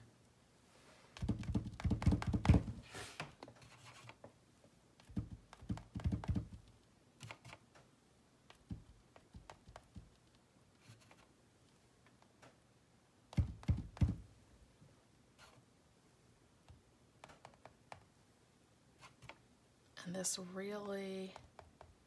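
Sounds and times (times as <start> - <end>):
brush handle tapping canvas: 1.2 - 2.8.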